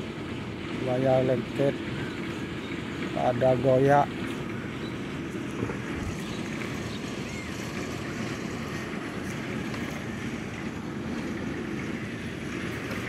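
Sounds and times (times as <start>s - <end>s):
outdoor rumble: 0.0s - 13.0s.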